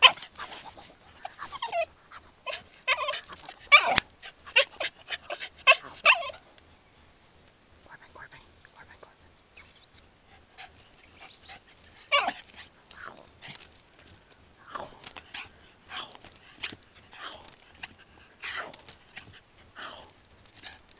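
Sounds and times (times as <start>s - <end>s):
dog whining yips: 1.2s - 1.9s, 2.5s - 6.4s, 12.1s - 12.5s.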